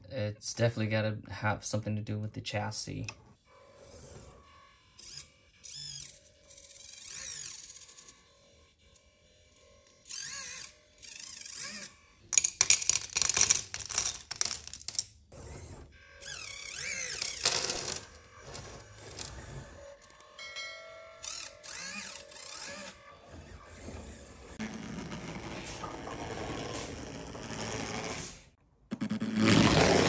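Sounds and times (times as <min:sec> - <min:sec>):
tiny motors whining: 0:03.6 - 0:12.2, 0:15.3 - 0:28.4.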